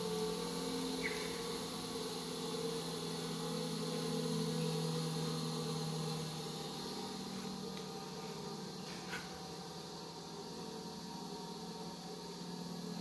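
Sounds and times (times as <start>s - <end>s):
bench grinder motor humming: 0.0s - 13.0s.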